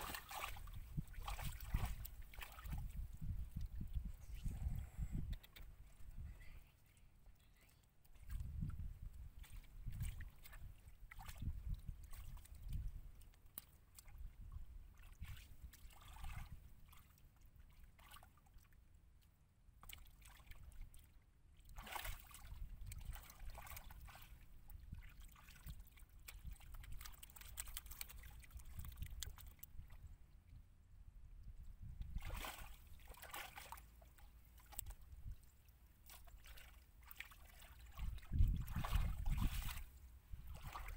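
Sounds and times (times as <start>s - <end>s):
faint low rumble: 0.0s - 10.9s.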